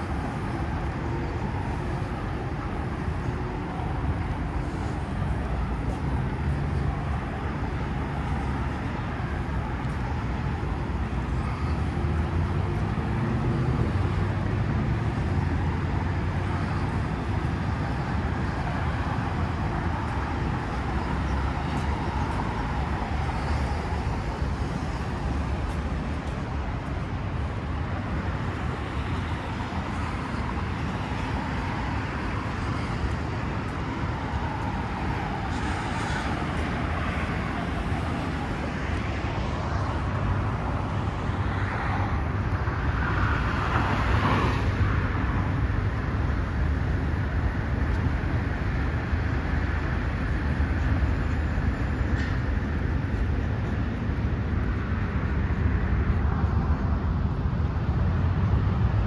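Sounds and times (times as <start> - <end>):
distant road traffic hum: 0.0 - 59.0.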